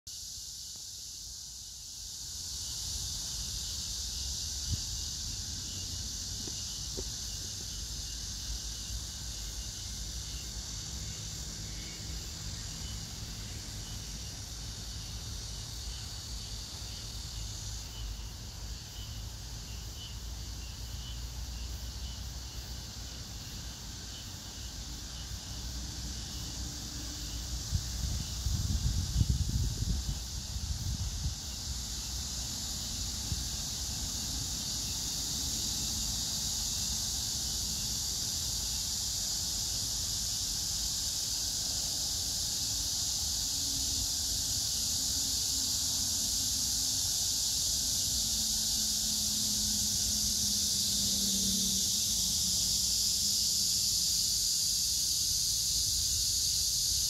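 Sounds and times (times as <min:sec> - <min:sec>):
cicadas chorus: 0:00.1 - 0:57.0
other insects: 0:00.1 - 0:57.0
wind rumble on microphone: 0:27.3 - 0:31.8.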